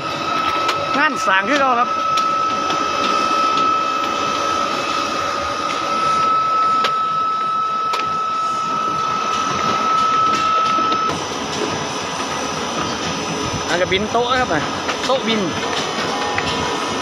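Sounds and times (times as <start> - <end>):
high-pitched machine whine: 0.0 - 17.0.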